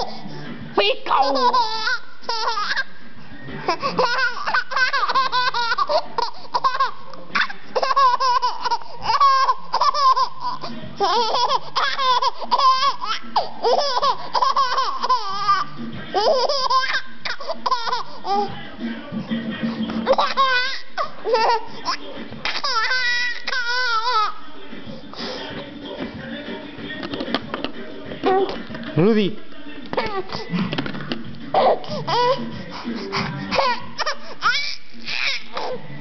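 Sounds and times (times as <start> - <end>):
baby laughing: 1.1 - 2.9, 3.6 - 18.5, 20.0 - 24.4, 29.9 - 30.5, 31.5 - 35.8.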